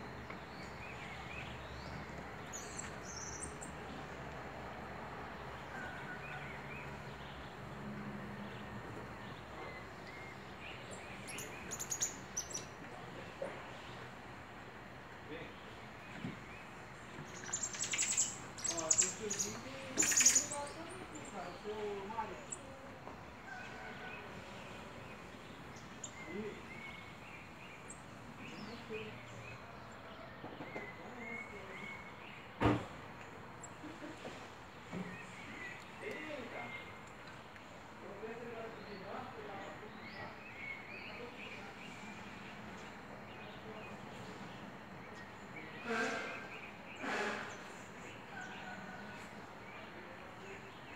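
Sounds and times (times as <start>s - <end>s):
outdoor background hiss: 0.0s - 50.9s
lower calls: 16.6s - 22.7s
faint short chirping calls: 17.2s - 21.4s.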